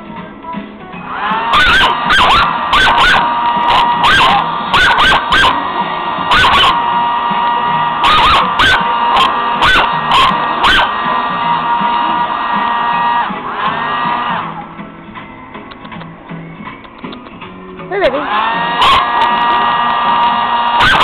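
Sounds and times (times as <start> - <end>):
blow dryer whine: 0.9 - 16.7, 17.9 - 21.0
dog barking and yipping: 1.4 - 5.6, 6.3 - 6.8, 8.0 - 11.0, 18.8 - 19.4, 20.7 - 21.0.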